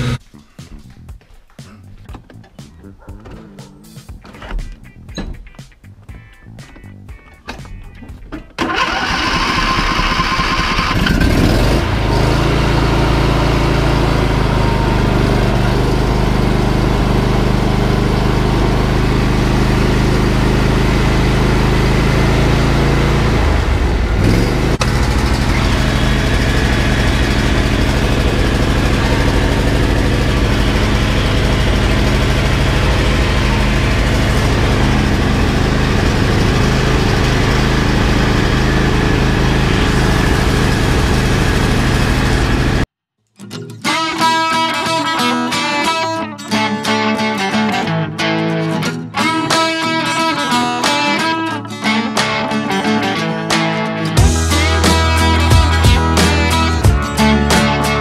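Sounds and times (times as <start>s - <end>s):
lawn mower engine starting and running: 0.0s - 0.2s, 6.2s - 42.9s, 54.2s - 58.0s.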